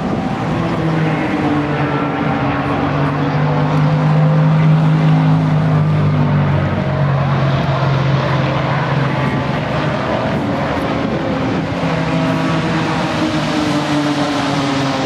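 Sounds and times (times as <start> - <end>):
distant piston engines droning: 0.0 - 15.0.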